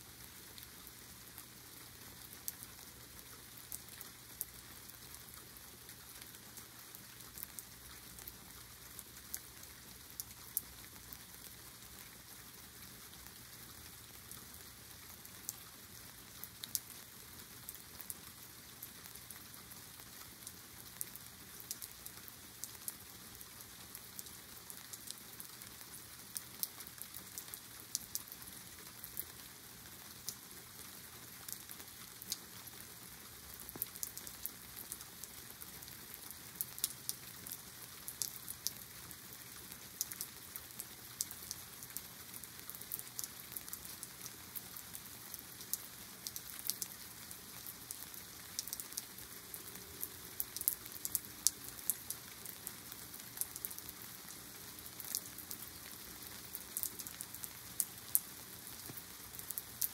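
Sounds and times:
rain falling: 0.0 - 59.9
raindrops ticking: 33.6 - 38.8, 39.5 - 59.9.

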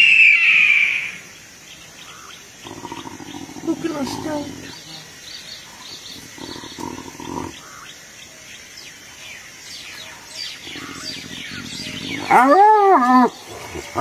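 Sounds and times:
faint bird chirps: 0.0 - 12.5
hyenas fighting: 2.6 - 4.9, 5.8 - 7.8, 10.5 - 14.0.

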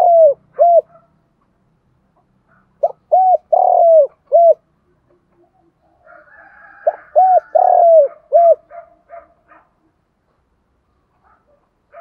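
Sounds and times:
dove cooing: 0.0 - 1.0, 2.8 - 9.0.

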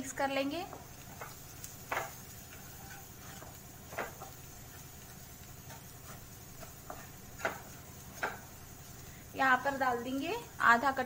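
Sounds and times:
wooden spatula scraping a pan: 0.7 - 9.1.

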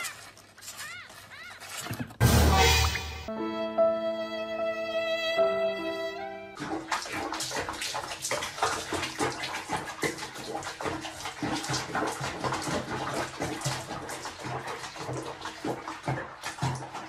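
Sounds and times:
water splashing in basin: 6.5 - 17.0.

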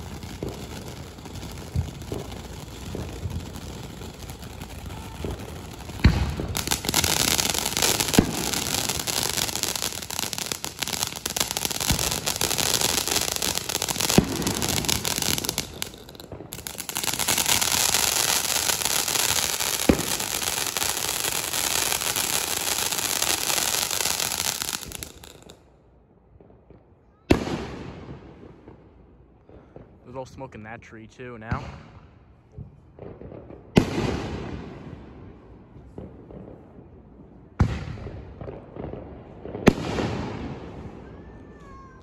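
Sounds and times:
firework fountain hissing crackle: 0.0 - 25.6
firework sharp pops: 0.0 - 25.6, 37.6 - 40.5.

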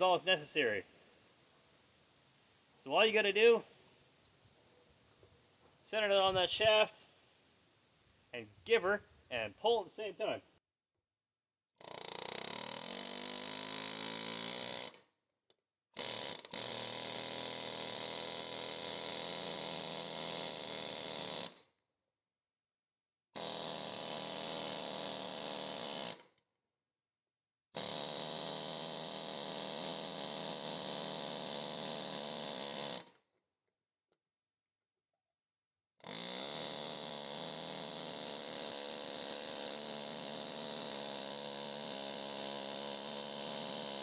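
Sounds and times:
pneumatic air hammer: 11.8 - 15.2, 15.9 - 21.8, 23.4 - 26.4, 27.8 - 33.3, 36.0 - 44.0.

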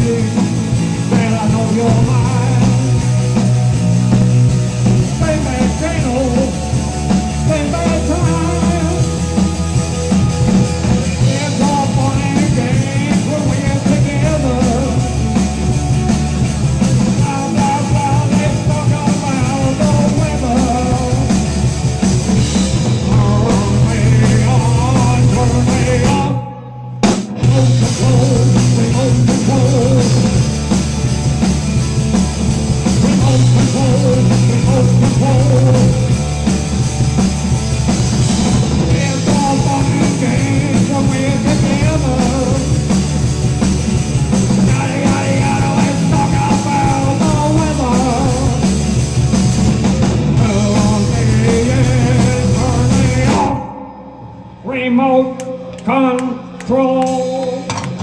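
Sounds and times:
male singer: 0.0 - 3.5, 4.8 - 9.4, 11.2 - 15.4, 17.0 - 21.5, 22.9 - 30.4, 32.9 - 36.3, 38.8 - 42.9, 44.6 - 48.8, 50.3 - 54.0, 54.6 - 58.0
pounding drums: 0.0 - 26.4, 27.0 - 54.6
amplified electric guitar: 0.0 - 58.0.

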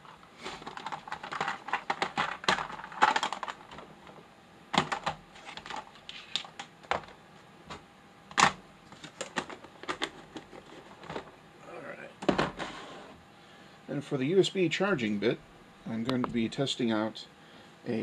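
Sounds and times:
rummaging in plastic tray: 0.5 - 3.9, 4.8 - 7.1.

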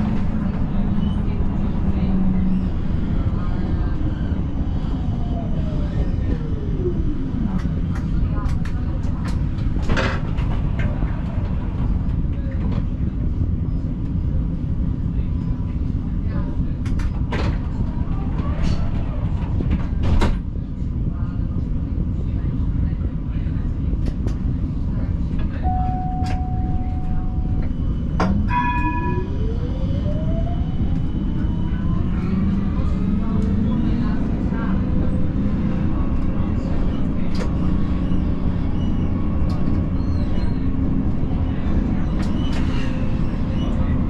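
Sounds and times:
tram wheels rumbling on rails: 0.0 - 44.0
steady beep: 25.6 - 27.6
tram traction drive whine: 25.6 - 44.0.

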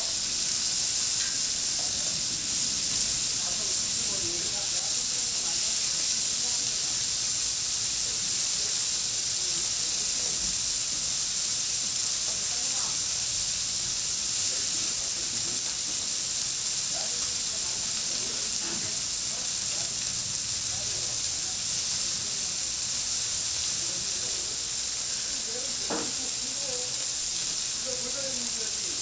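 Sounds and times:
food sizzling on griddle: 0.0 - 29.0
brief knock: 25.9 - 26.1.

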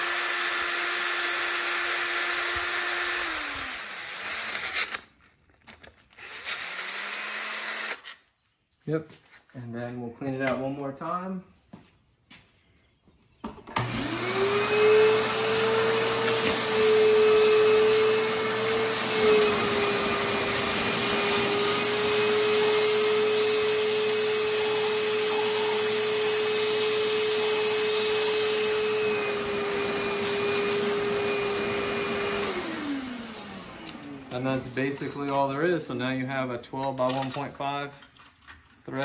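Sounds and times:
vacuum cleaner whining: 0.0 - 5.0, 13.6 - 35.2.

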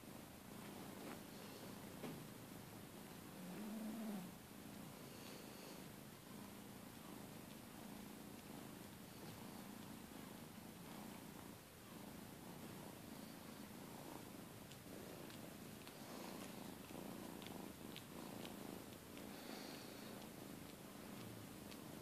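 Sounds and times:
cat purring: 0.0 - 22.0
faint clicks: 14.2 - 22.0.

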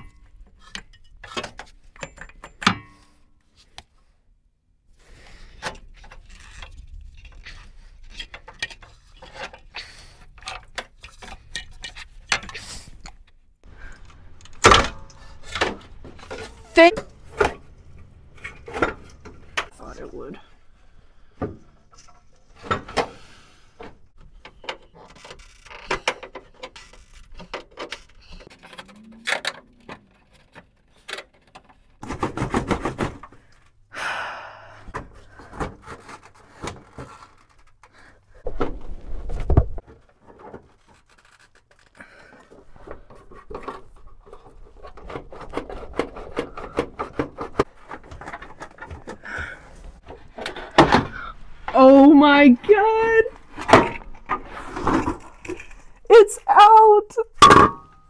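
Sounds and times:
metal knocking and scraping: 14.4 - 19.8, 42.7 - 51.7.

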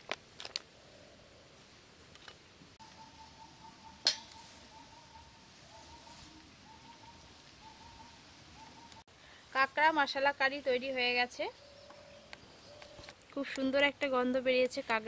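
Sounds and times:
sharp clink: 4.0 - 4.4.

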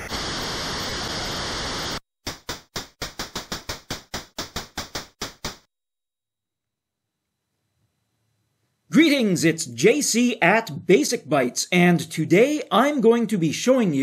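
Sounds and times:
static hiss: 0.0 - 2.5.

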